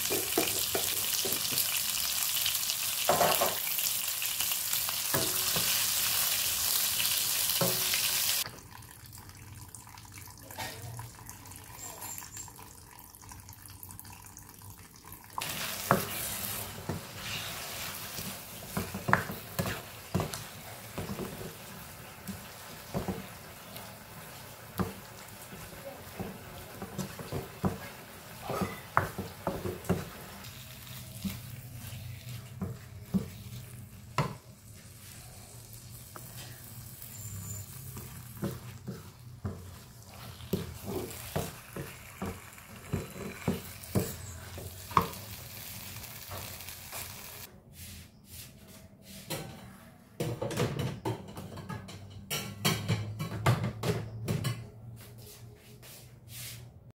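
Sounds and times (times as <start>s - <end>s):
paste frying: 0.0s - 10.0s, 11.8s - 47.5s
wooden spatula scraping wok: 15.4s - 47.2s.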